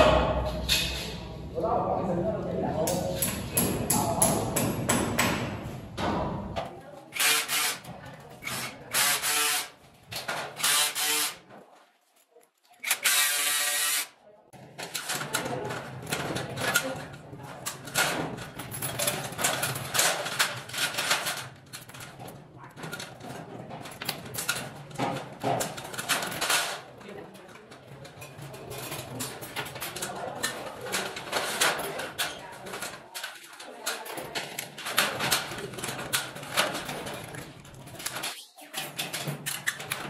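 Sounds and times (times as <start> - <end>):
metallic clicks and rattles of wire: 2.8 - 9.3, 14.6 - 40.0.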